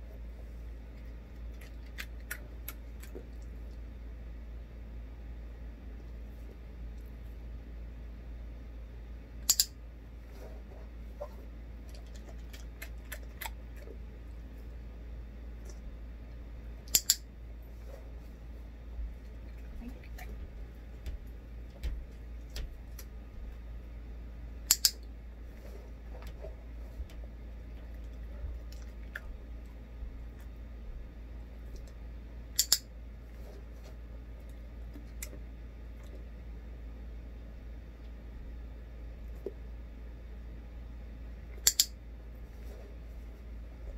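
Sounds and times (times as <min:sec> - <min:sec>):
low steady hum: 0:00.0 - 0:43.9
dog training clicker clicking: 0:09.5 - 0:09.7, 0:16.9 - 0:17.2, 0:24.7 - 0:25.0, 0:32.6 - 0:32.8, 0:41.6 - 0:41.9.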